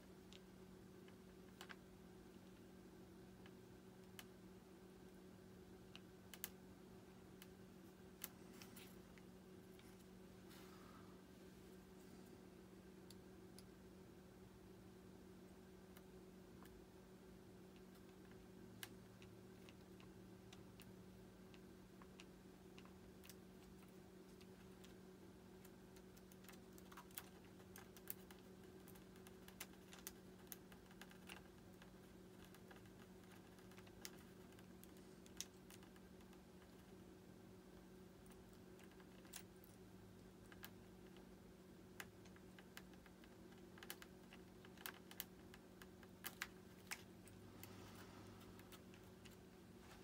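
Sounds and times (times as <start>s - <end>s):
steady low hum: 0.0s - 50.0s
small parts clicking and tapping: 17.7s - 37.0s, 38.2s - 41.3s, 41.9s - 47.8s.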